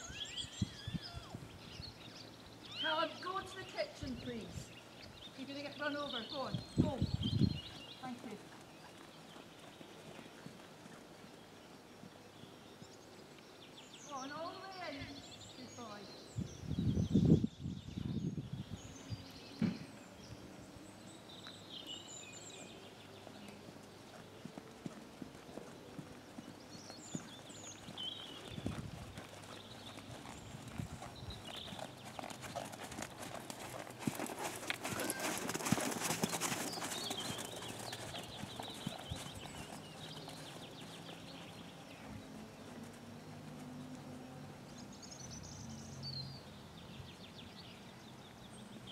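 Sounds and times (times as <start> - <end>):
horse hoofbeats on sand: 23.2 - 44.2.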